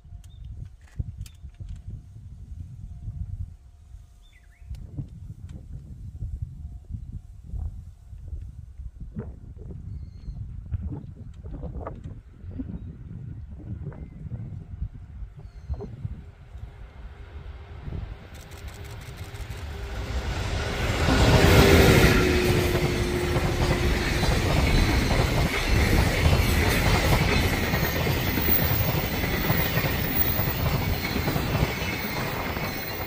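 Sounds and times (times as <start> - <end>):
electric locomotive passing: 16.0 - 33.0
freight wagons rolling past: 18.5 - 33.0.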